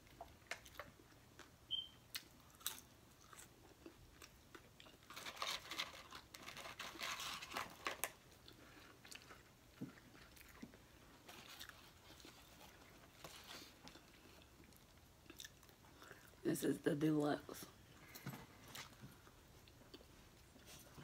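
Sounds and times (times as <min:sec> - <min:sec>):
crunchy chewing: 0:02.1 - 0:16.4.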